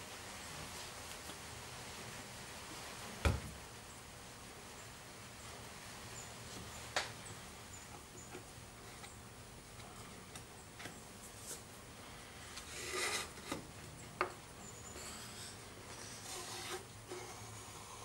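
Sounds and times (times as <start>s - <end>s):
wood scraping on workbench: 12.6s - 13.7s, 15.0s - 18.0s.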